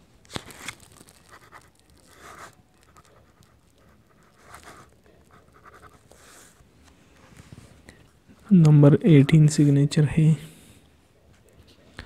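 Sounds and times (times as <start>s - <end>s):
pen scratching on paper: 1.2s - 6.6s.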